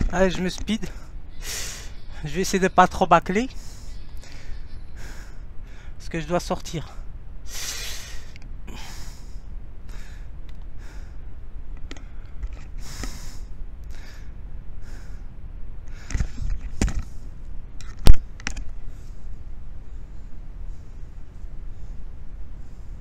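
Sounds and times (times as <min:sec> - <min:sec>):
man breathing hard: 0:00.9 - 0:02.2, 0:03.5 - 0:06.0, 0:06.8 - 0:17.3.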